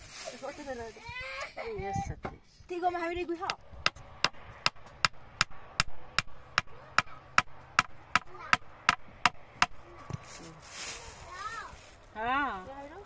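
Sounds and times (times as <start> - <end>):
sharp knocks: 3.4 - 10.2.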